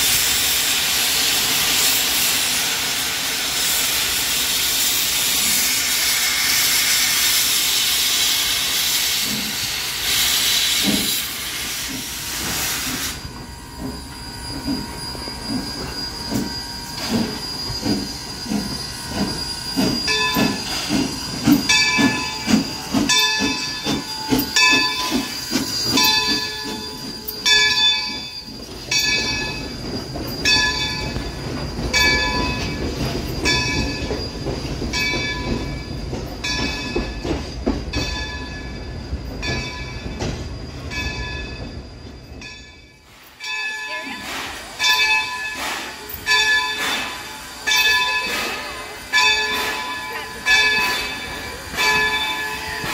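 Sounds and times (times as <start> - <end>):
steam hissing from cylinder cocks: 0.0 - 52.9
steam locomotive exhaust chuffs: 0.0 - 52.9
locomotive bell ringing: 11.6 - 52.9.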